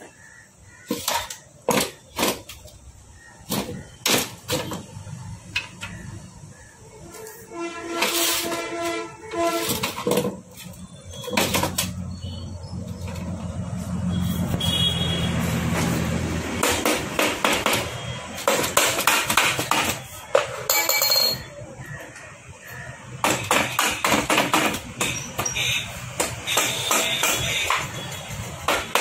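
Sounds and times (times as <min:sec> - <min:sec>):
metal tools tapping on aluminium: 0:20.4 - 0:21.6.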